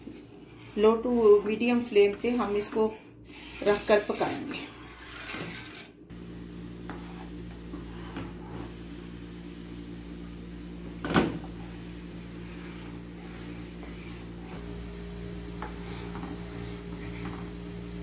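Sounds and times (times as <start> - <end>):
spatula scraping frying pan: 0.0 - 6.0, 11.6 - 14.6
low hum with held tones: 6.0 - 18.0.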